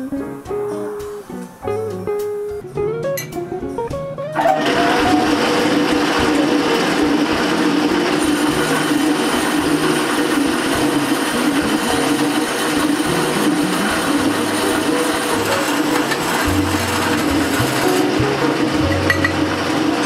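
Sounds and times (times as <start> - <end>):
bandsaw cutting metal tube: 4.4 - 20.0.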